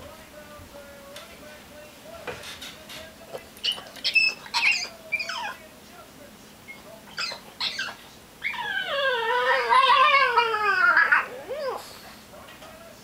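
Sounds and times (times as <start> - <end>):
dog squeaky cries: 3.6 - 5.6, 6.7 - 11.8
dog wavering whine: 3.6 - 5.6, 6.7 - 12.0.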